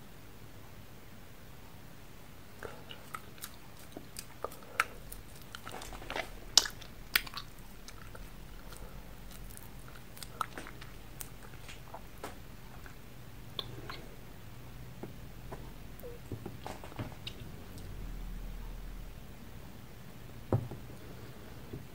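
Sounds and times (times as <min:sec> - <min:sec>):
candy sucking and crunching: 0:02.8 - 0:13.0.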